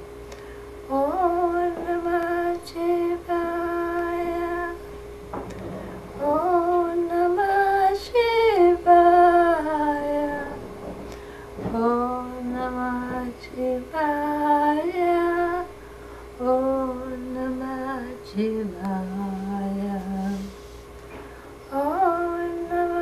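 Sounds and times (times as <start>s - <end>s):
woman chanting: 0.9s - 4.8s, 6.2s - 10.7s, 11.6s - 15.7s, 21.7s - 23.0s.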